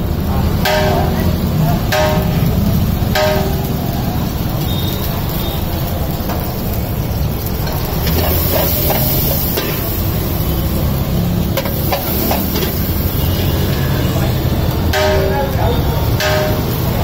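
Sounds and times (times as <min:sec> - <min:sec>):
low rumble and hiss: 0:00.0 - 0:17.0
ladle scraping a wok: 0:07.4 - 0:14.5.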